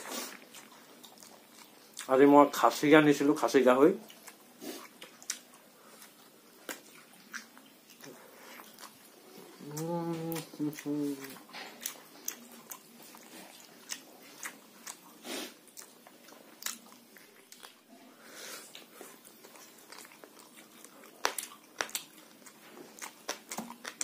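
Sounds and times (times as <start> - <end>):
man chewing with wet smacks: 0.0 - 2.7, 4.0 - 18.0, 18.7 - 24.0.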